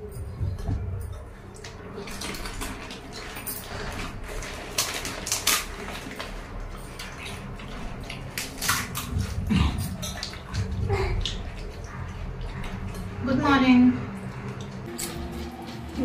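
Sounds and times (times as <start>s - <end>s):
metal bowls clinking: 0.0s - 16.0s
liquid splashing: 1.4s - 16.0s
puri shells cracking: 4.4s - 11.4s.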